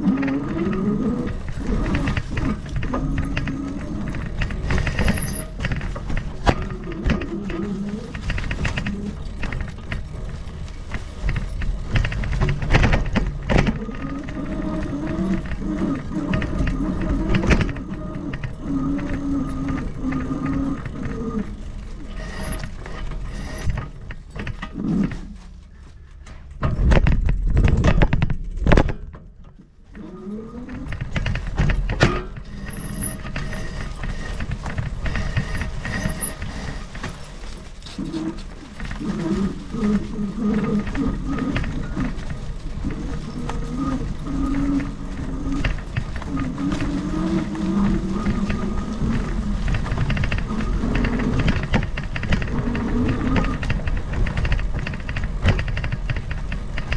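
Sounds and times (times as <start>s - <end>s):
e-bike rattling and knocking: 0.0s - 56.9s
wavering hum: 29.9s - 55.2s.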